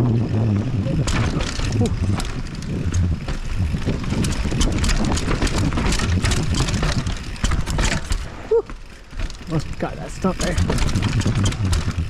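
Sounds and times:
wind buffeting microphone: 0.0 - 7.7
bike rattling and clattering: 0.0 - 12.0
tyres rumbling over dirt: 0.0 - 12.0.

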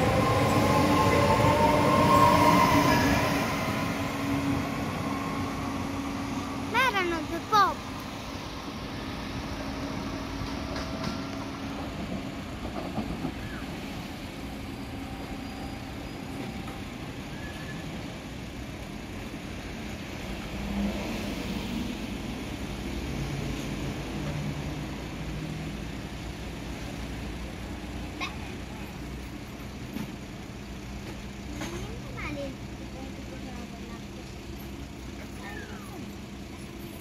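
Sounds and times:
train rumbling on track: 0.0 - 37.0.

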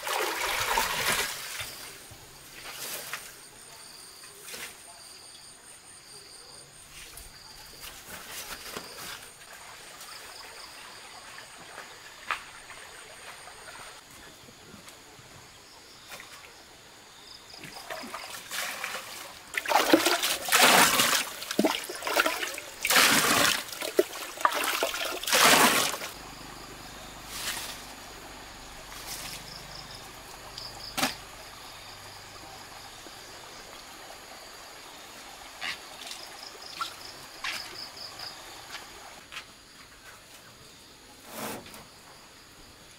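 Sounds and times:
water pouring and splashing: 0.0 - 2.0, 17.6 - 26.2
insects chirping: 0.0 - 42.9.

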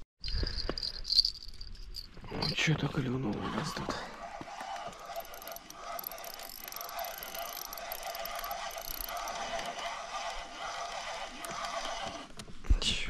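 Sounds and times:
fishing reel whirring and ticking: 0.4 - 12.4.

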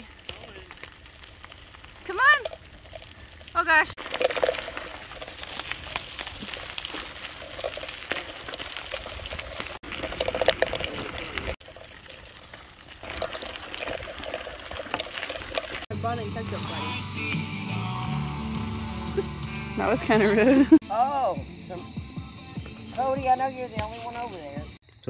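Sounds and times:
bicycle tyres crunching on gravel: 0.0 - 16.9.

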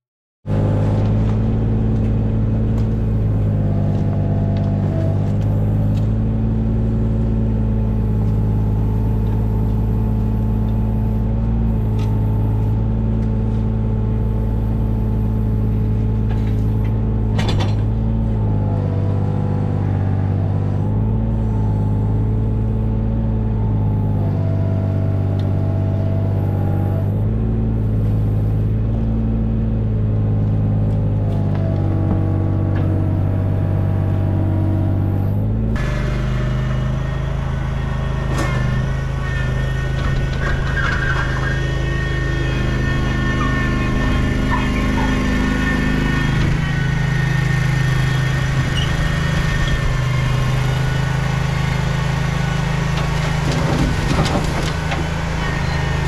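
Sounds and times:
engine running with low hum: 0.4 - 56.0.

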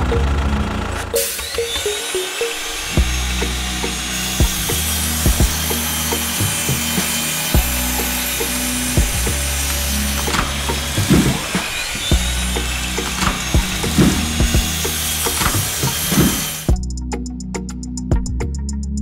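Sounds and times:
small electric motor hum: 0.8 - 16.7
saw disc clicks and knocks: 8.4 - 16.5.

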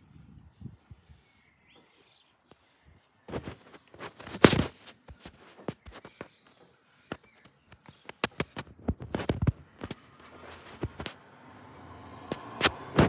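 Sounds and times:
sharp taps and knocks: 3.3 - 11.2.

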